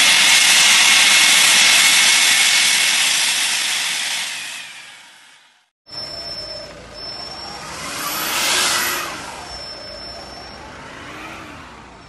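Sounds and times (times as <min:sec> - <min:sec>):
loud rushing noise: 0:00.0 - 0:05.6
heavy truck engines running: 0:05.9 - 0:12.0.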